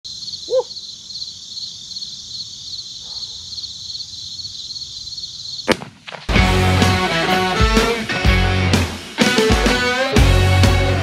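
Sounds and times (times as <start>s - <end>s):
insects chirping in pulsing trill: 0.0s - 5.8s
sharp snap: 5.7s - 6.3s.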